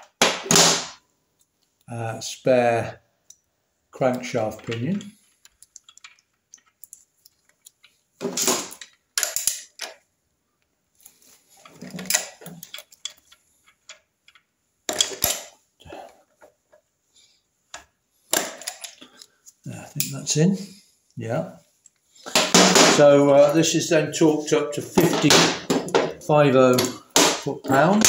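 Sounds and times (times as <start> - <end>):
metal clinking and clattering: 4.7 - 10.0, 11.6 - 15.6.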